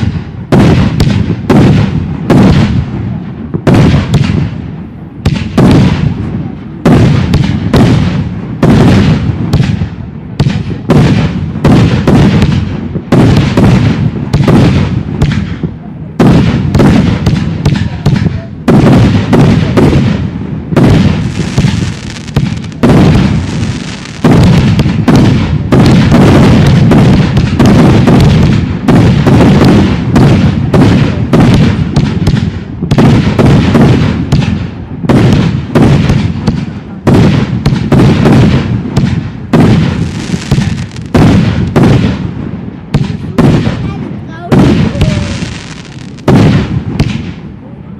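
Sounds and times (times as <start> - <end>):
fireworks bangs: 0.0 - 47.9
fireworks hissing: 20.8 - 31.7, 39.5 - 42.0, 42.9 - 47.3.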